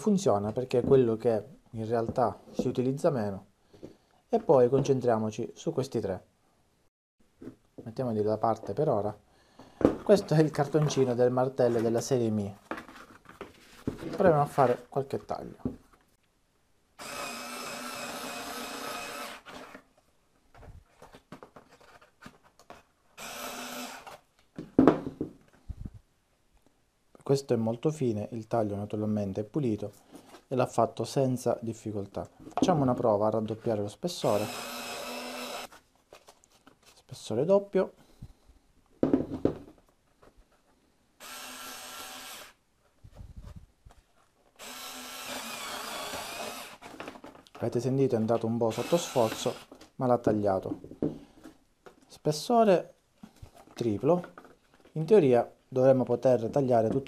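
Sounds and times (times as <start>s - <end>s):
cordless screwdriver motor running: 17.0s - 19.4s, 23.2s - 24.2s, 34.4s - 35.7s, 41.2s - 42.5s, 44.6s - 46.8s
cordless screwdriver motor whine: 34.5s - 35.7s, 44.6s - 46.8s.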